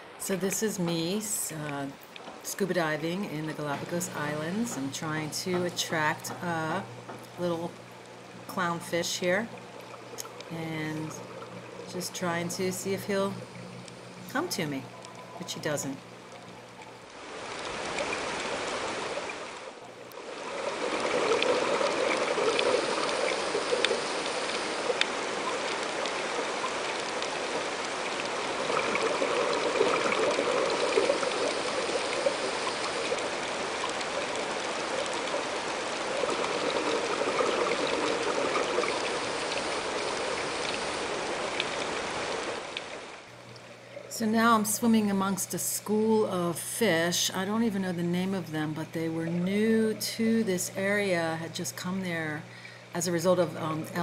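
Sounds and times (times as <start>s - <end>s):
underwater bubbles gurgling: 1.6s - 44.6s
faint clicks: 9.5s - 11.7s, 23.7s - 26.2s.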